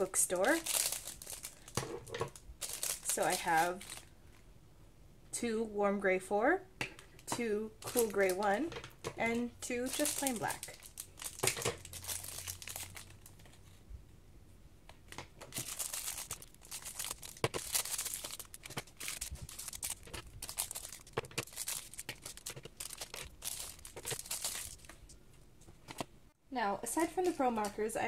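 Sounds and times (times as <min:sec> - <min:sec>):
plastic packaging crinkling and tearing: 0:00.0 - 0:04.1, 0:07.8 - 0:08.6, 0:09.7 - 0:13.4, 0:15.4 - 0:25.1.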